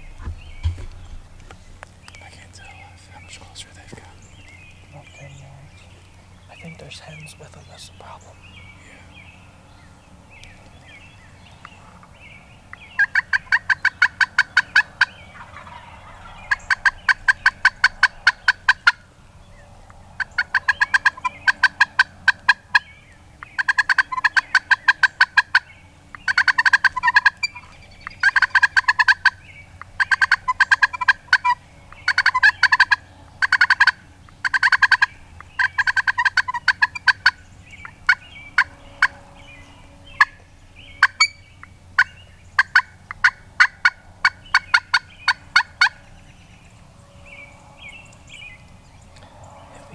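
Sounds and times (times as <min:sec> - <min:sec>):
turkey box call yelps: 0:13.0 - 0:19.0, 0:20.2 - 0:22.9, 0:23.5 - 0:39.2, 0:40.1 - 0:40.4, 0:41.0 - 0:46.0.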